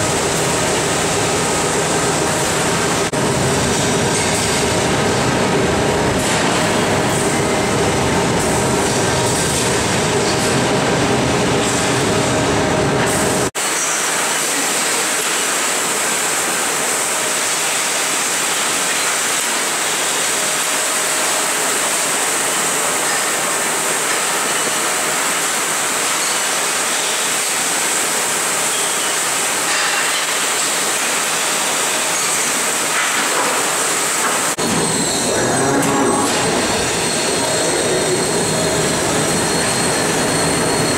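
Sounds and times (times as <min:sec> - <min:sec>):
milking machine hissing: 0:13.8 - 0:40.9.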